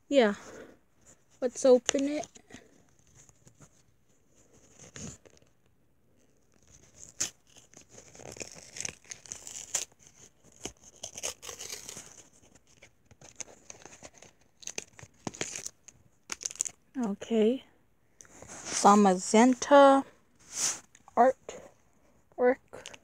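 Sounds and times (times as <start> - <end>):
wrapper crinkling and tearing: 6.5 - 16.8.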